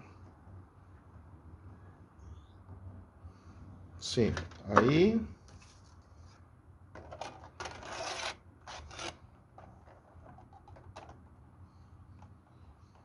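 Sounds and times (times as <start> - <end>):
plastic panels rustling scrape: 7.0 - 11.2.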